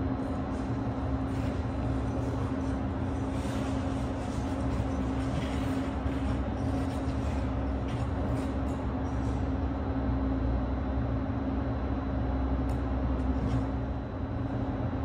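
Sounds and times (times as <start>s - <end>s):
machinery low drone: 0.0s - 15.0s
skate blades scraping ice: 1.4s - 8.6s.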